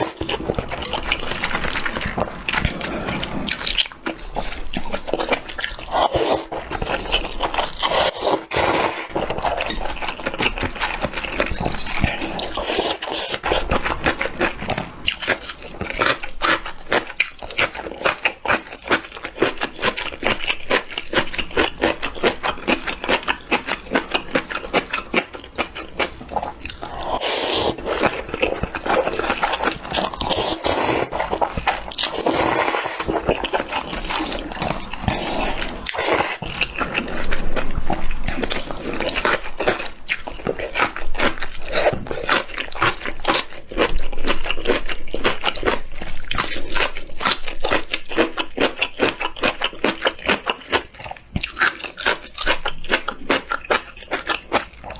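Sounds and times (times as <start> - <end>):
slurping and chewing noodles: 0.0 - 54.9.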